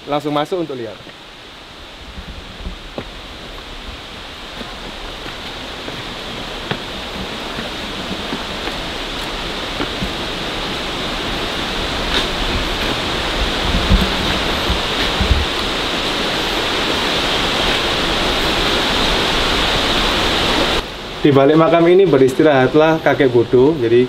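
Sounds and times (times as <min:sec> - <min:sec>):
falling water rushing: 0:00.0 - 0:24.0.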